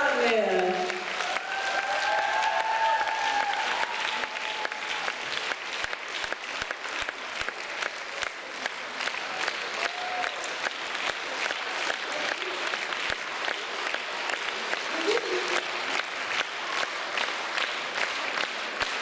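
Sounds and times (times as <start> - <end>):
audience applauding: 0.0 - 19.0.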